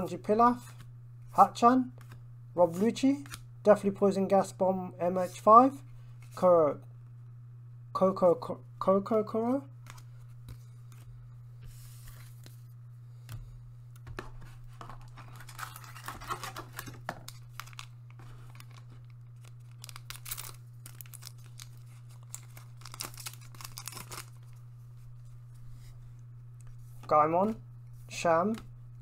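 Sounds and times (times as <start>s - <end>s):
steady low hum: 0.0s - 29.0s
foil wrapper crinkling and tearing: 15.1s - 24.6s.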